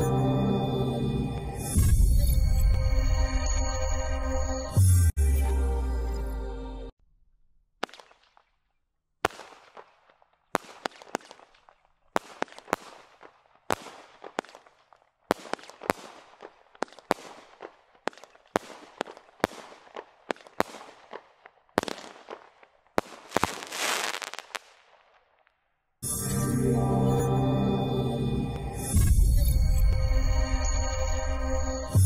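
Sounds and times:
firework bangs: 9.2s - 25.2s.

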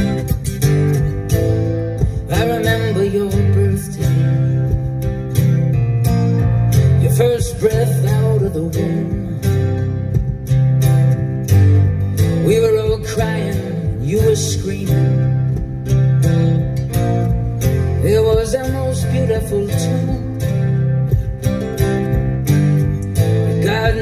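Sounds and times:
acoustic guitar: 0.0s - 24.0s
bass: 0.0s - 24.0s
person singing: 2.1s - 5.0s, 7.0s - 9.8s, 18.0s - 21.2s, 23.5s - 24.0s.

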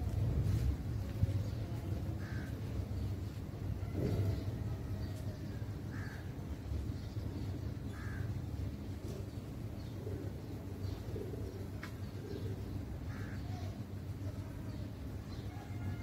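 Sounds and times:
steady low rumble: 0.0s - 15.3s
crow cawing: 2.2s - 2.6s, 5.9s - 6.3s, 8.0s - 8.3s, 13.1s - 13.6s
pigeons cooing: 3.8s - 4.9s, 9.0s - 13.4s.

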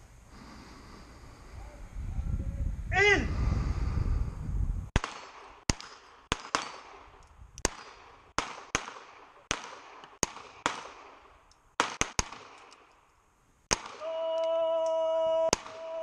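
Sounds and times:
echoing handgun shots: 5.0s - 13.0s, 13.7s - 14.1s.

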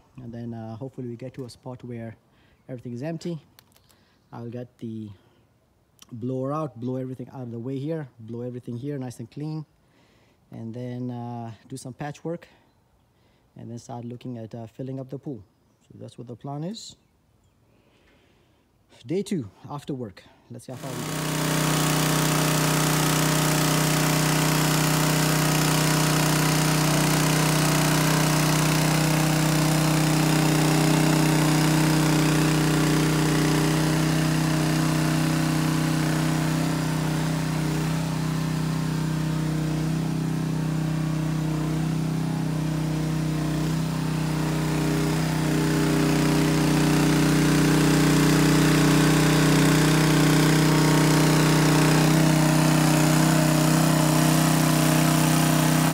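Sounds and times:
pump engine running: 20.7s - 55.9s.

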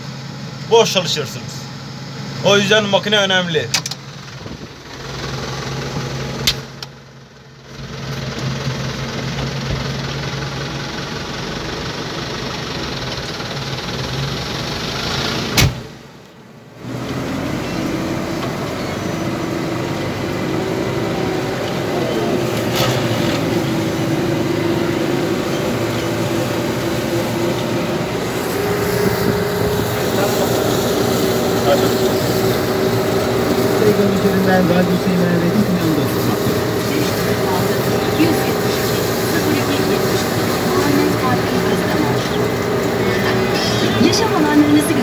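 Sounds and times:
tractor engine running: 0.0s - 45.0s
higher steady hum: 17.5s - 45.0s.

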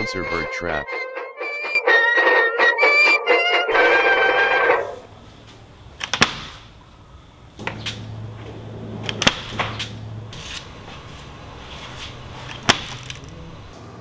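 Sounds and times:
faint low hum: 3.8s - 14.0s
trap net frame snapping down: 12.0s - 13.4s.

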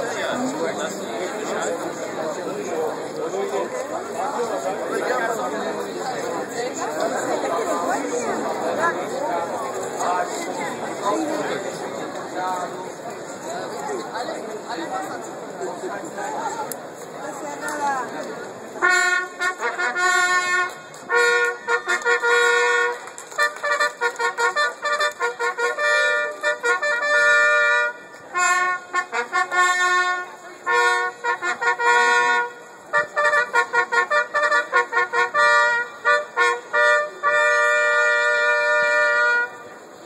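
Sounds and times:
trumpets playing a fanfare: 18.8s - 39.7s.

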